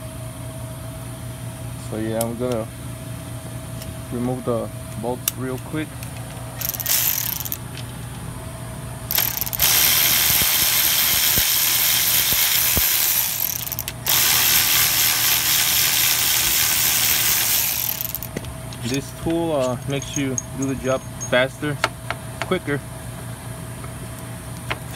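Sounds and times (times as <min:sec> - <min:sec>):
power ratchet spinning: 0:06.6 - 0:07.6, 0:09.1 - 0:21.4.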